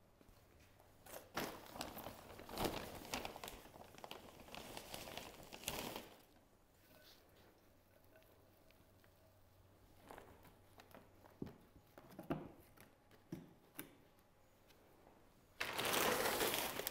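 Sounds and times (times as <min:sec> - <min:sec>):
bag crinkling and rustling: 0:01.0 - 0:06.4, 0:15.6 - 0:16.9.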